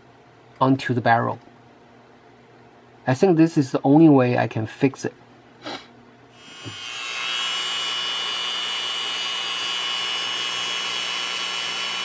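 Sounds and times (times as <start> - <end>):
rotary drill whining: 6.4 - 12.0.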